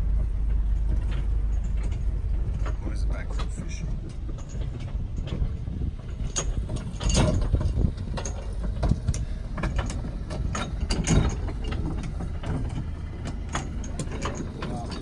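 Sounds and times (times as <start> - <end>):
boat engine rumbling: 0.0 - 15.0.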